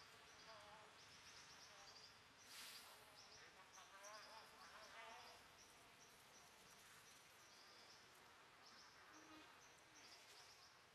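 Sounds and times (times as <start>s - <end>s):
soft hiss: 2.4s - 3.2s.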